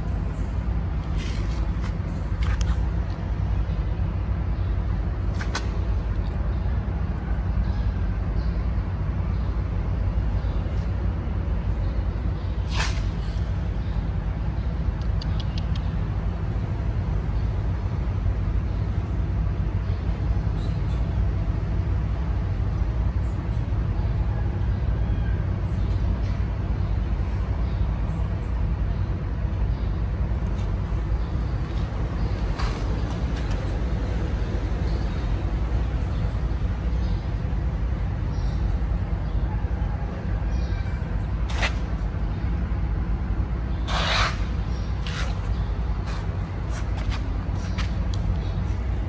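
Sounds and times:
low background rumble: 0.0 - 49.0
brief clicks: 15.0 - 15.9.

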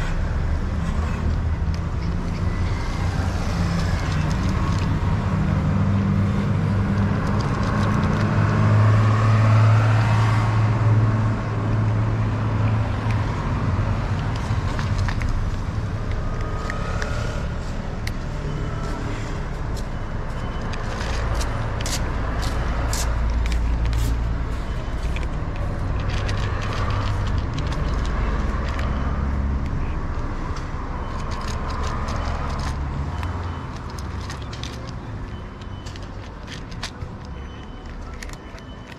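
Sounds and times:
low rumble of street traffic: 0.0 - 38.9
cat chewing food from plastic dish: 25.1 - 29.1.

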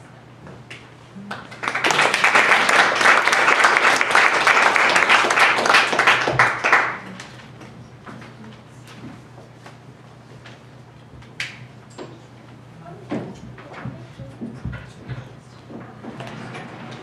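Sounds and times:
audience applauding: 1.3 - 7.3.

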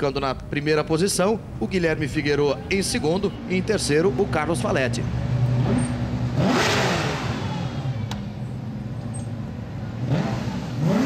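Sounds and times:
race car engines running: 0.0 - 11.0
race car passing: 3.3 - 8.7
engine revving: 4.1 - 8.2, 9.9 - 11.0.

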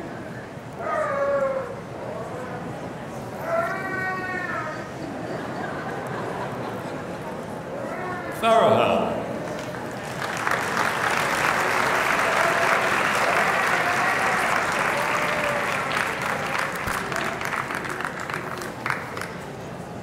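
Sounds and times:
audience applauding: 9.4 - 19.6.

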